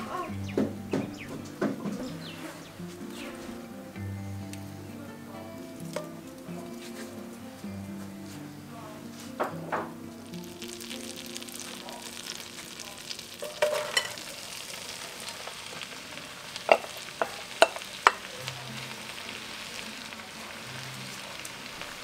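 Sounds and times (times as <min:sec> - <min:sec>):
butter sizzling in a pot: 0:00.0 - 0:07.7, 0:08.3 - 0:22.0
knocks and clinks in pot: 0:13.4 - 0:14.2, 0:16.7 - 0:18.2.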